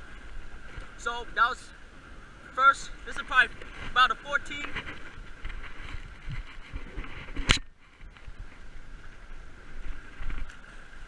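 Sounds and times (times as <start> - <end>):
surf washing against rocks: 0.0 - 11.0
wind on microphone: 3.2 - 11.0.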